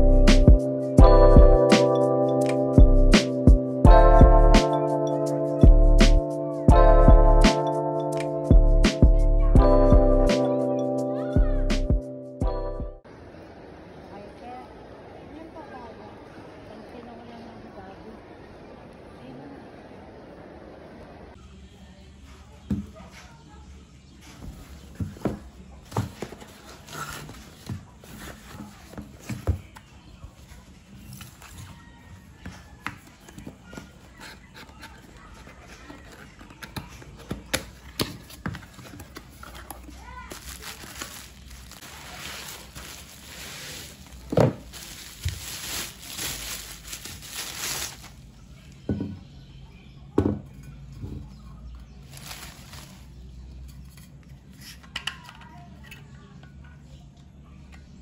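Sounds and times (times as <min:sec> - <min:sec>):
box and bag rustling: 0:24.4 - 0:29.6, 0:37.8 - 0:48.2, 0:52.0 - 0:53.2
bubble wrap crinkling: 0:38.4 - 0:48.3, 0:52.0 - 0:53.2.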